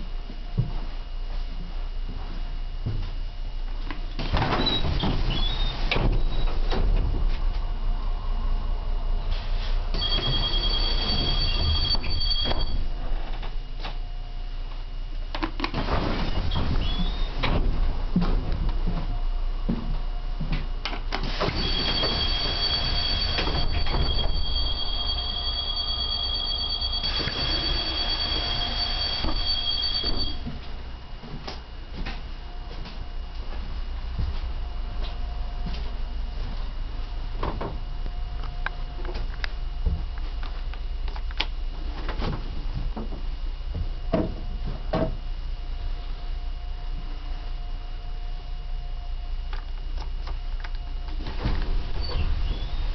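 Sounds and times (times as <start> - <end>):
bus door warning tone: 9.9 - 13.0, 21.2 - 30.7
pneumatic door air rush: 21.2 - 25.2.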